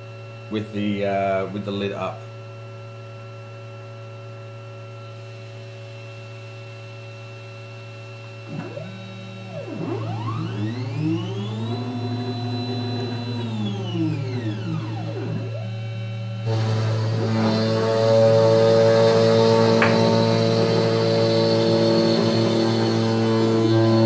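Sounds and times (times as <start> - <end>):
spindle humming: 8.2 - 24.0
stepper motors whining: 8.4 - 24.0.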